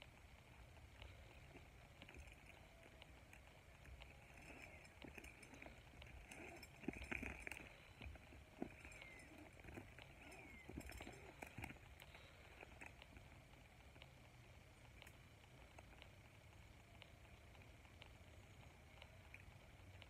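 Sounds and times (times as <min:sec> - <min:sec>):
climbing gear clicks and knocks: 0:01.0 - 0:13.3.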